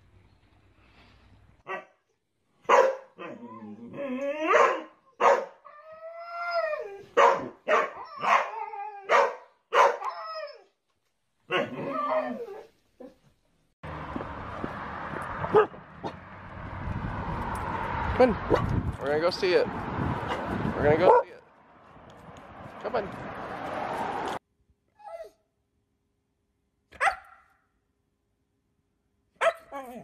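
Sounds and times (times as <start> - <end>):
dogs barking: 2.6 - 3.4, 4.5 - 5.6, 7.1 - 10.1, 11.5 - 11.9, 15.5 - 16.2, 18.5 - 18.7, 20.3 - 21.4, 27.0 - 27.4, 29.4 - 29.8
steady rushing outdoor noise: 13.8 - 24.4.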